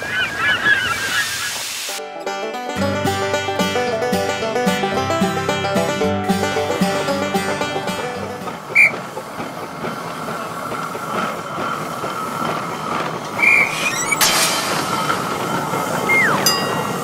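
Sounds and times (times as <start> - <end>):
train rolling on rails: 0.0 - 17.0
steam train whistle toots: 8.7 - 9.0, 13.4 - 14.0, 16.0 - 17.0
sudden burst of noise: 13.6 - 16.4.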